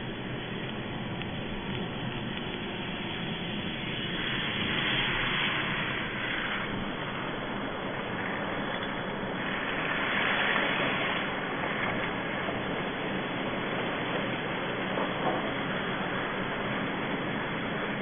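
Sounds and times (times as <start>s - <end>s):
tyres hissing on wet road: 0.0s - 18.0s.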